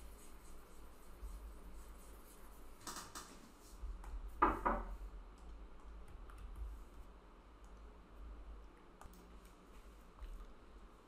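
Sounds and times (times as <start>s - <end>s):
stylus tapping and scraping tablet: 0.0s - 4.8s
low steady hum: 0.0s - 11.0s.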